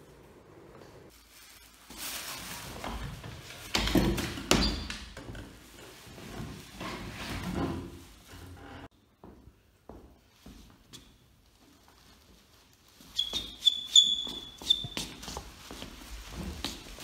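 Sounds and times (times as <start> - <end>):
plastic bin bag rustling: 1.1 - 3.7, 5.6 - 8.3, 15.2 - 17.0.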